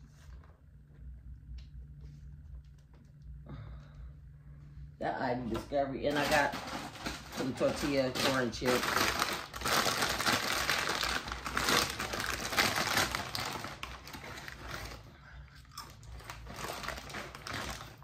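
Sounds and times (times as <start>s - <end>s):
plastic chip bag crinkling: 5.5s - 18.0s.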